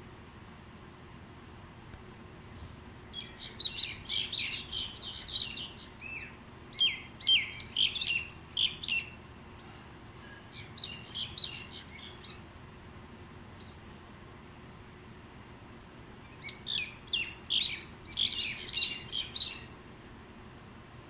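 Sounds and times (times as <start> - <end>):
birds chattering and whistling: 2.6 - 12.5, 16.2 - 19.8.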